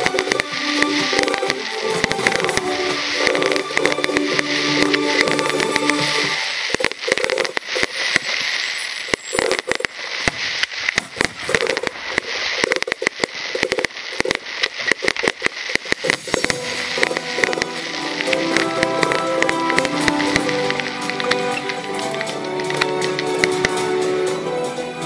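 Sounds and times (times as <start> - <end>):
music with steady pitched notes: 0.0 - 6.7, 16.1 - 25.0
fireworks crackling and banging: 0.0 - 25.0.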